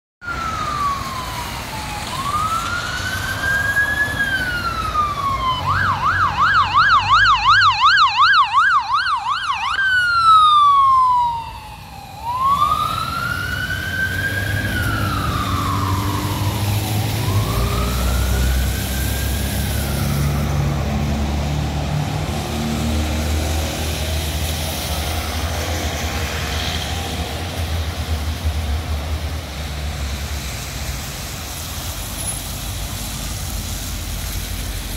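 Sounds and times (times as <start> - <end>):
ambulance siren wailing and yelping: 0.2 - 23.7
traffic engines: 0.2 - 34.9.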